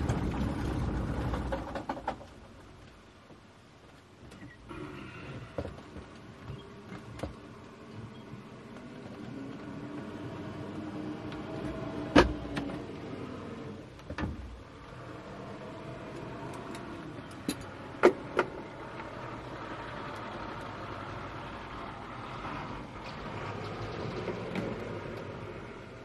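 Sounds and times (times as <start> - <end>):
sharp clicks and knocks: 16.1 - 19.2.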